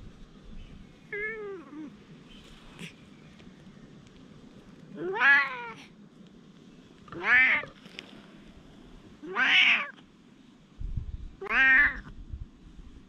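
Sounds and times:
cat meowing: 0:01.1 - 0:01.9, 0:05.0 - 0:05.8, 0:07.2 - 0:07.8, 0:09.2 - 0:10.0, 0:11.4 - 0:12.1.

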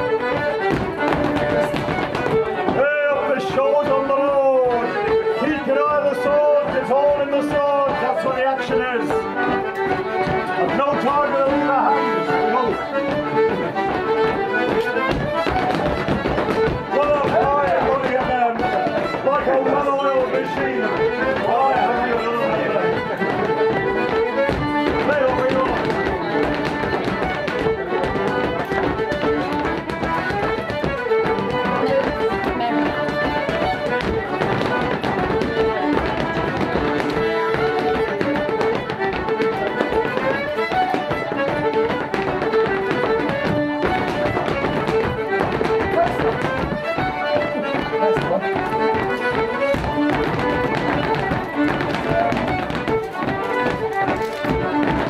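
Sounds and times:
dancers' sharp taps and clicks: 0:00.0 - 0:55.0
fiddle playing lively tune: 0:00.0 - 0:55.0
hard shoes stepping on wooden floor: 0:12.3 - 0:55.0.

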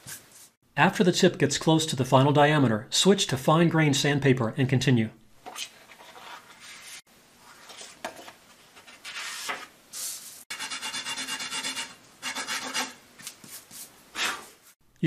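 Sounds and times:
paper sliding on table: 0:05.9 - 0:07.9
rasping sanding strokes: 0:10.5 - 0:13.0.

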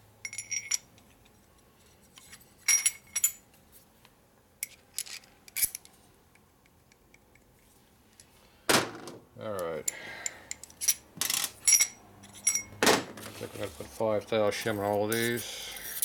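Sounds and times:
light metallic clinks: 0:00.2 - 0:00.9.

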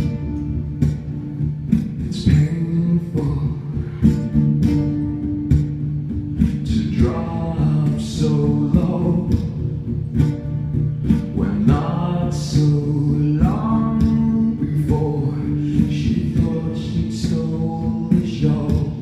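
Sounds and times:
acoustic guitar: 0:00.0 - 0:19.0
man singing into a microphone: 0:02.0 - 0:04.1, 0:06.4 - 0:09.9, 0:11.3 - 0:19.0.

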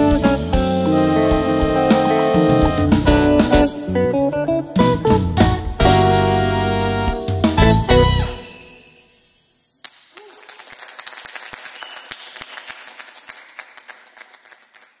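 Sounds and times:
audience applauding: 0:09.8 - 0:15.0.

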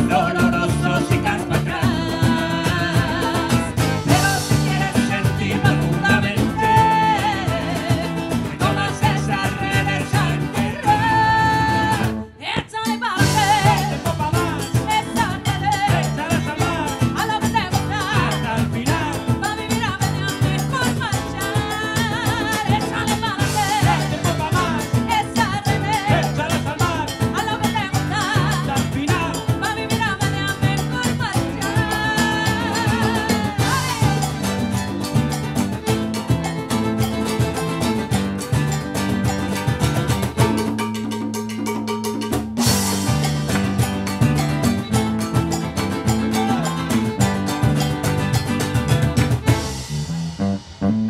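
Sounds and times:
woman singing: 0:00.0 - 0:35.0, 0:46.2 - 0:47.0
salsa band playing: 0:00.0 - 0:51.0.

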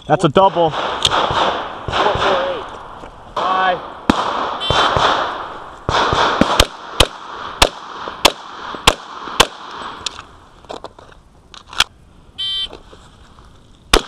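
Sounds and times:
pistol shots: 0:00.5 - 0:10.1.

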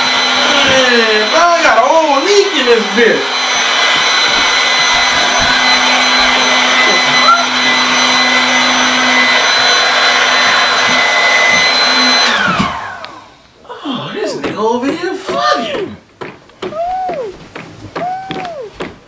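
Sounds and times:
pump winding down: 0:00.0 - 0:13.3
electric air pump whining: 0:00.0 - 0:19.0.

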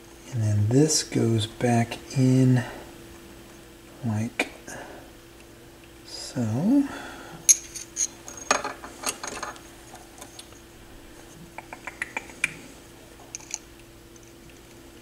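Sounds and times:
small parts clicking and rattling: 0:13.3 - 0:14.7.

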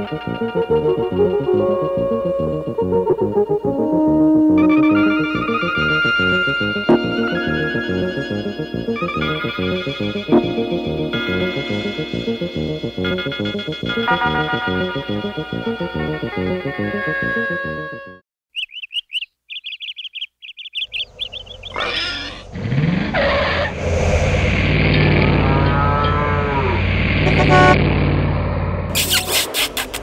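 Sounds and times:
music: 0:00.0 - 0:18.2
birds chirping: 0:18.5 - 0:23.8
vehicle engine hum: 0:20.8 - 0:29.4
loud noisy burst: 0:23.5 - 0:27.9.

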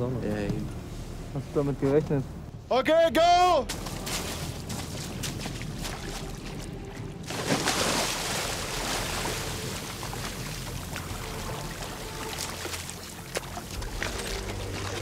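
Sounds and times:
low steady hum: 0:00.0 - 0:15.0
water splashing and sloshing: 0:03.7 - 0:15.0.

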